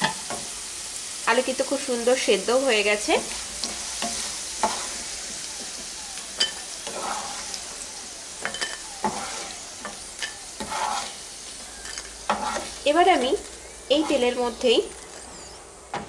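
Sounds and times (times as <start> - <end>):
potatoes sizzling in hot oil: 0.0 - 16.0
wooden spatula scraping a pan: 3.2 - 5.0, 6.8 - 7.5, 8.4 - 14.8.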